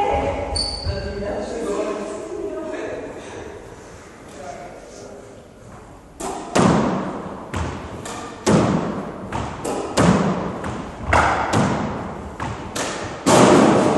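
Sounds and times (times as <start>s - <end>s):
squash ball smacks echoing: 6.2s - 13.9s.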